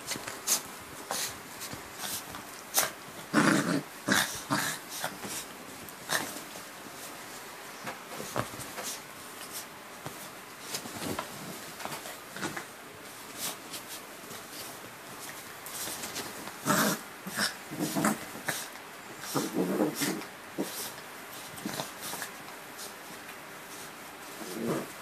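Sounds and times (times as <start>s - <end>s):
rustling of blankets: 0.0s - 25.0s
dog snorts and growls: 2.0s - 5.4s, 16.6s - 21.0s, 21.6s - 22.3s, 24.4s - 25.0s.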